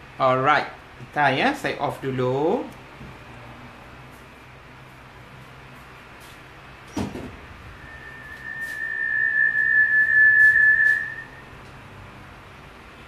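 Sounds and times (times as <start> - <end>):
high steady whistle: 7.6 - 11.6.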